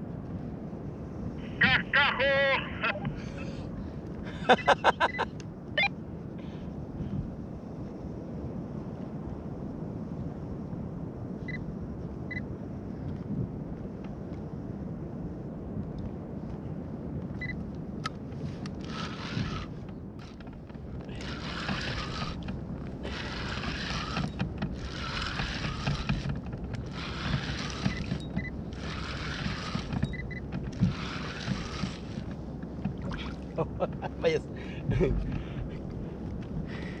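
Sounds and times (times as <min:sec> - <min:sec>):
wind and water rumble: 0:00.0 - 0:37.0
fishing reel whirring: 0:18.4 - 0:33.5.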